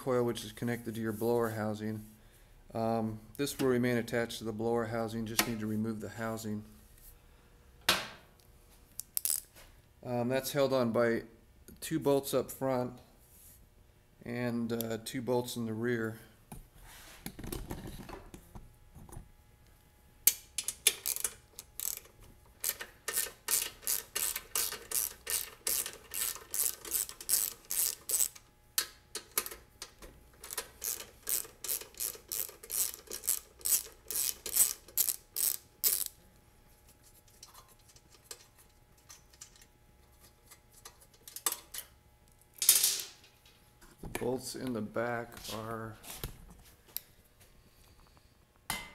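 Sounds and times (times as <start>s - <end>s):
ratchet wrench clicking: 9.1s - 9.4s, 20.6s - 28.4s, 30.4s - 36.2s.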